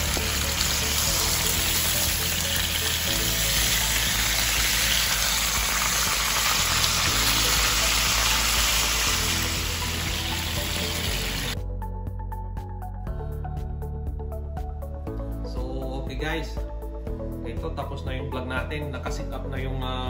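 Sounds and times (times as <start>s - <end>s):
fish sizzling in oil: 0.0s - 11.6s
background music: 0.0s - 20.0s.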